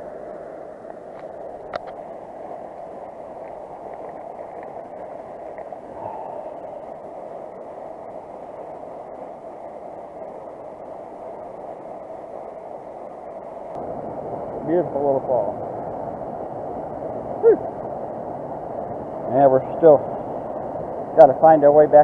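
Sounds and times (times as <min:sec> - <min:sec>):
creek water rushing over rocks: 0:00.0 - 0:22.0
faint ticks: 0:03.3 - 0:06.2.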